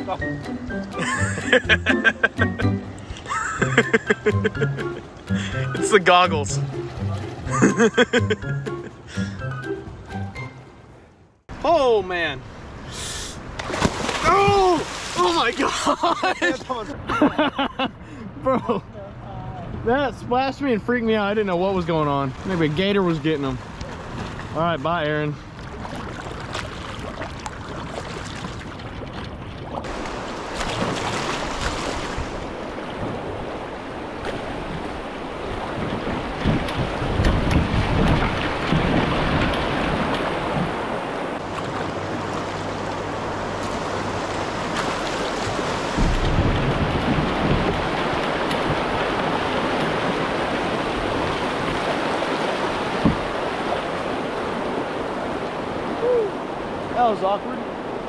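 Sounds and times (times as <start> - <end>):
water sloshing and splashing: 5.0 - 7.8, 13.5 - 16.8, 21.6 - 58.0
wind noise on microphone: 33.0 - 41.0, 45.4 - 52.0.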